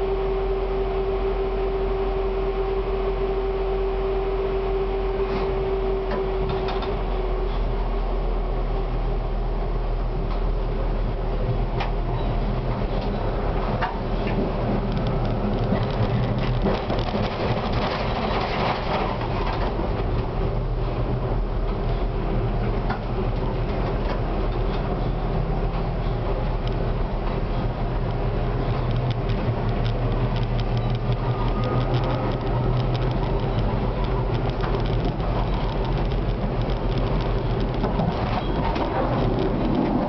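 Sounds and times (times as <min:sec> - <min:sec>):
rising motor whine: 0:00.0 - 0:07.2
low motor hum: 0:00.0 - 0:40.0
tram wheels rumbling on rails: 0:00.0 - 0:40.0.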